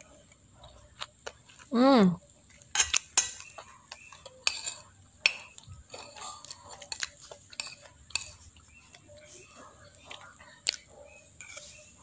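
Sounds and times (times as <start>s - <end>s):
cutlery scraping ceramic plate: 2.7s - 8.6s, 11.4s - 12.0s.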